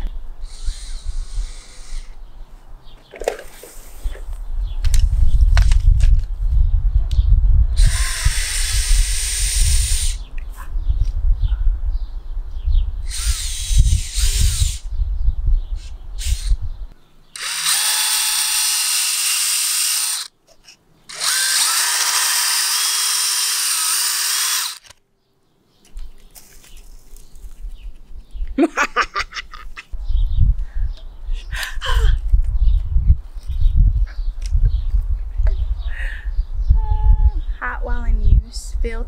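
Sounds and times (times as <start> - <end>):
drill boring into soil: 7.8 - 10.2, 13.1 - 14.9, 17.4 - 20.3, 21.1 - 24.9.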